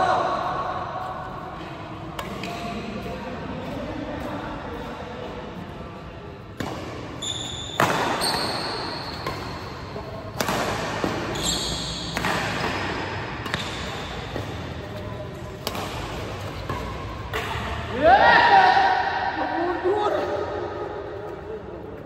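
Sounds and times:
racket hitting shuttlecock: 0:02.1 - 0:03.7, 0:06.5 - 0:18.7
shoes squeaking on court: 0:07.1 - 0:10.0, 0:11.0 - 0:15.2.

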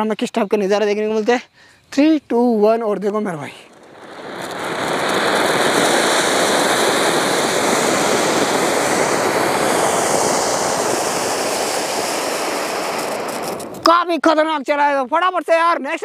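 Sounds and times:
fountain firework hissing: 0:03.5 - 0:13.9.

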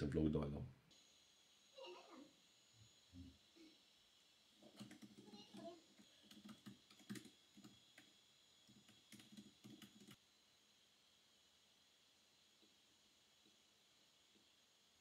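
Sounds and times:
faint keyboard typing: 0:04.6 - 0:10.2.

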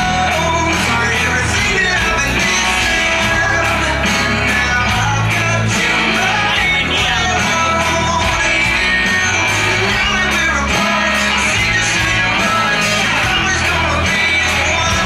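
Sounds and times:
loud rock song with singing: 0:00.0 - 0:15.0.

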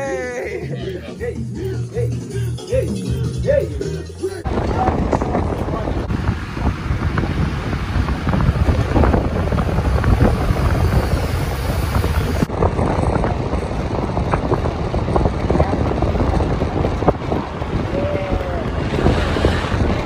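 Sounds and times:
bus road and engine noise: 0:00.0 - 0:20.0
wind buffeting microphone: 0:04.4 - 0:20.0.

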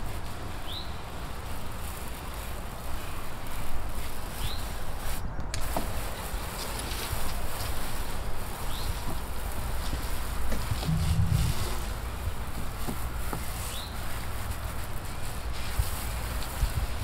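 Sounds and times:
hose water spraying on wood: 0:00.0 - 0:17.0
low rumble: 0:10.7 - 0:12.6.

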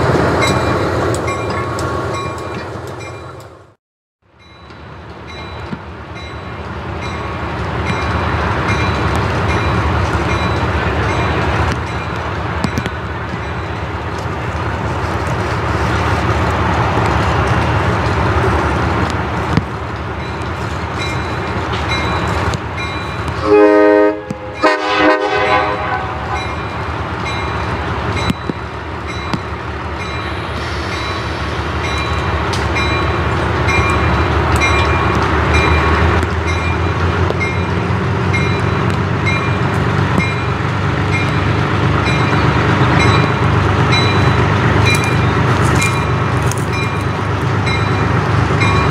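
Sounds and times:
diesel locomotive engine running: 0:00.0 - 0:48.9
locomotive horn blasts: 0:23.4 - 0:26.7.

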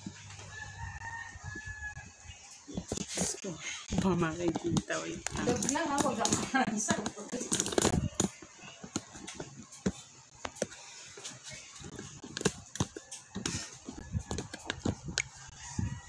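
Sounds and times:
phone rubbing against clothing: 0:02.8 - 0:06.5, 0:07.3 - 0:16.0.

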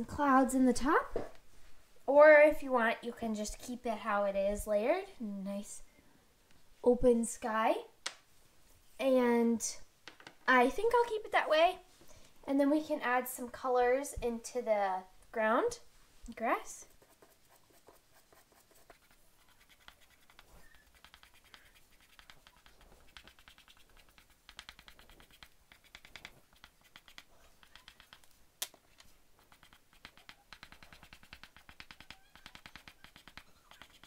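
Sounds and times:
pastel scratching on paper: 0:16.4 - 0:34.0.

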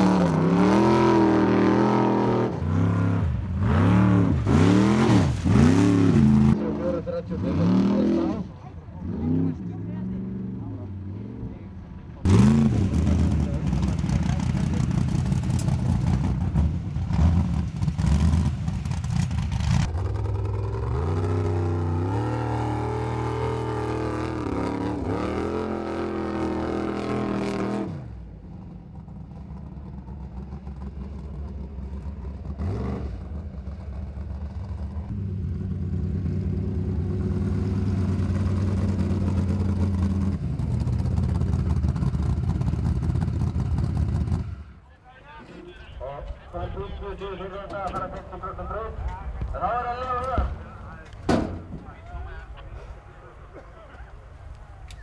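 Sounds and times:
car engine revving hard: 0:00.0 - 0:06.6.

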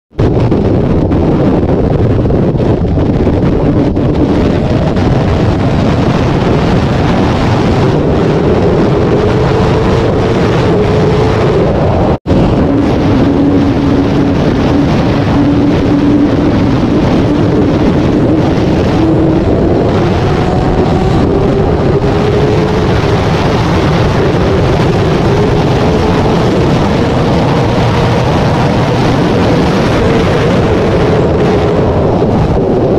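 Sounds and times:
wind buffeting microphone: 0:00.1 - 0:32.9
motorcycle engine accelerating: 0:00.2 - 0:32.9.

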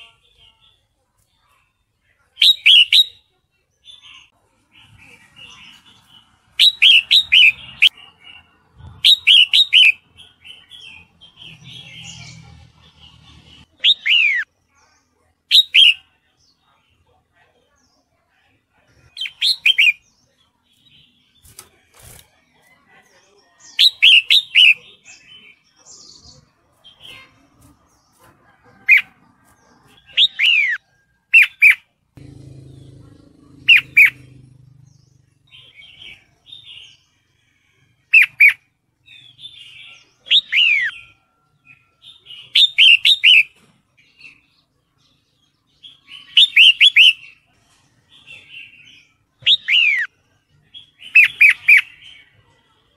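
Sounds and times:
bulbul whistled calls: 0:02.4 - 0:03.2, 0:06.6 - 0:08.0, 0:09.0 - 0:10.0.

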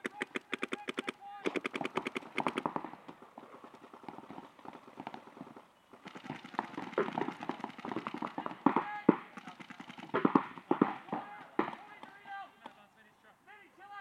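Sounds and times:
paintball markers firing pops: 0:00.0 - 0:03.2, 0:06.1 - 0:12.8.

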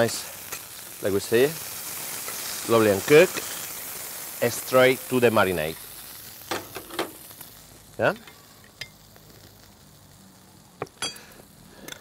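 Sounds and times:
meat sizzling faintly: 0:00.0 - 0:12.0
metal tongs clinking on bowl: 0:11.0 - 0:11.3.

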